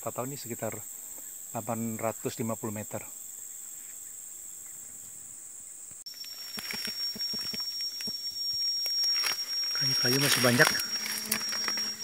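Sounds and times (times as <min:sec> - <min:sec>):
high-pitched insect chorus: 0:00.0 - 0:12.0
thin high insect whine: 0:00.0 - 0:12.0
crackles and rustles: 0:05.9 - 0:12.0.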